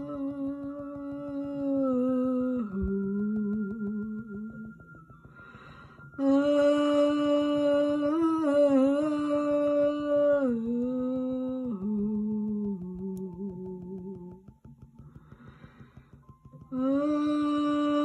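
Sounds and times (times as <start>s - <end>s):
person humming: 6.2s - 14.5s.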